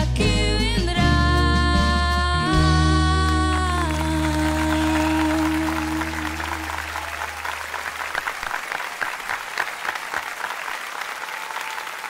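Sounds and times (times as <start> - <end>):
audience applause: 3.3 - 12.0.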